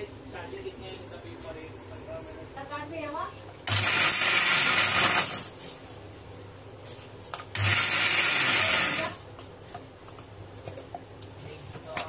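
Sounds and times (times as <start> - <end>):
mixer grinder motor running: 3.7 - 5.6, 7.5 - 9.2.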